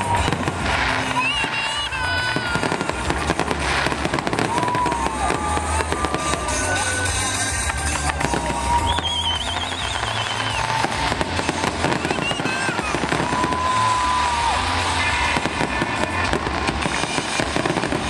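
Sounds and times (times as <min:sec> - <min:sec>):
fireworks bangs and crackles: 0:00.0 - 0:18.0.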